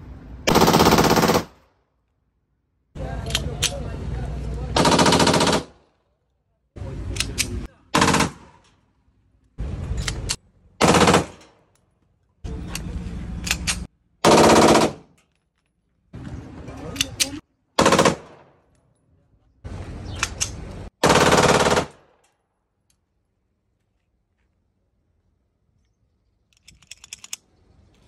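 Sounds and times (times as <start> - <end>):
pistol firing full auto bursts: 0.5 - 1.6, 4.8 - 5.8, 8.0 - 8.6, 10.8 - 11.5, 14.2 - 15.1, 17.8 - 18.5, 21.0 - 22.2.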